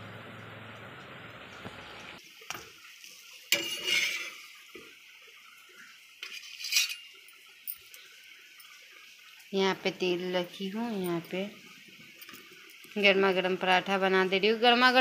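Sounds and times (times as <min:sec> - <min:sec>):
plates and utensils clattering: 0:03.5 - 0:04.5, 0:06.2 - 0:07.2.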